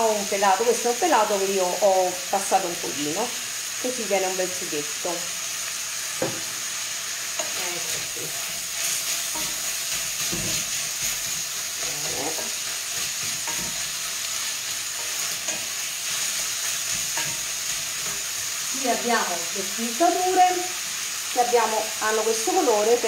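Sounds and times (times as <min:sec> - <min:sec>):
sausage meat sizzling in pan: 0:00.0 - 0:23.0.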